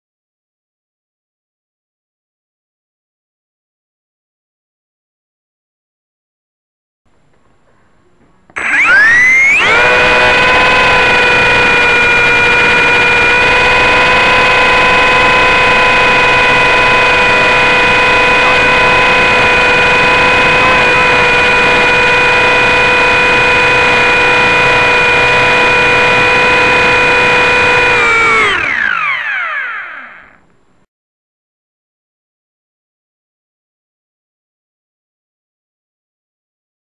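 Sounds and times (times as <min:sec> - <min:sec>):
helicopter electric motor whine: 0:08.6 - 0:30.5.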